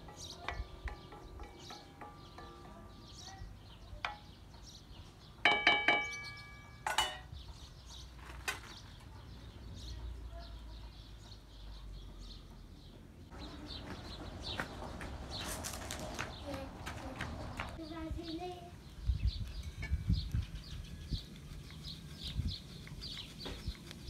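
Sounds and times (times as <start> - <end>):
spoon clanking on metal pot: 0.0 - 4.5, 5.4 - 7.3.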